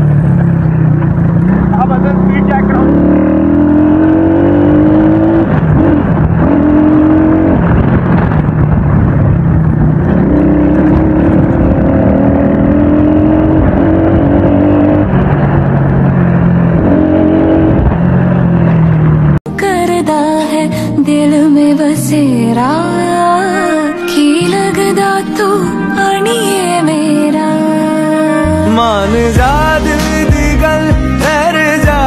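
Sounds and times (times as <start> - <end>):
motorcycle engine accelerating: 0.0 - 19.4, 28.5 - 32.0.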